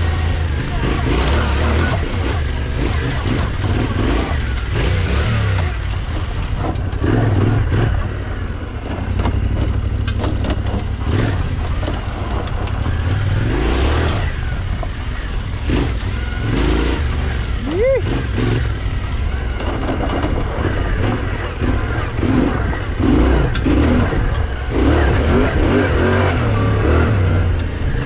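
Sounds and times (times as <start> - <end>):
motorcycle engine revving: 0.0 - 28.0
stones clicking under tyres: 1.3 - 7.4, 8.7 - 16.4.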